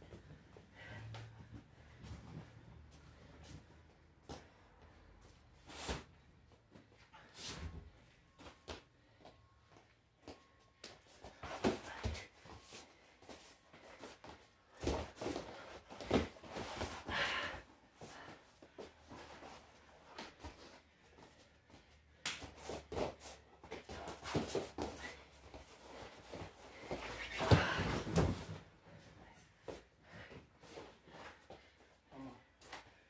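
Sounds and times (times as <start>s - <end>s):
bodies thudding on mat: 27.0s - 28.6s.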